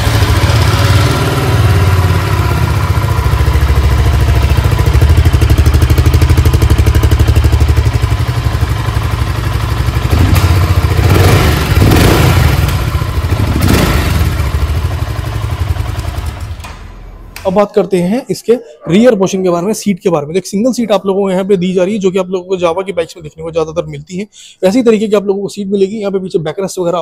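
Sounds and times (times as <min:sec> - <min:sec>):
motorcycle engine idling and revving: 0:00.0 - 0:17.4.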